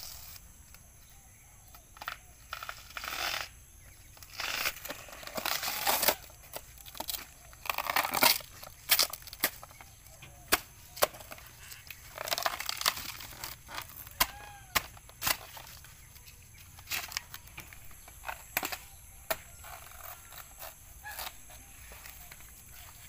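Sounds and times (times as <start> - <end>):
fibrous layers tearing: 4.3 - 9.6
cleaver chopping plant trunk: 13.7 - 15.5.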